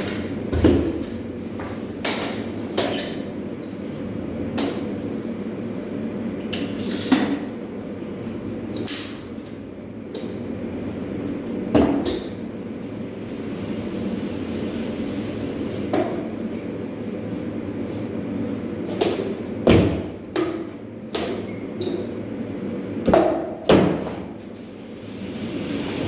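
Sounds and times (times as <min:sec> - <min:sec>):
steady hum and hiss: 0:00.0 - 0:26.0.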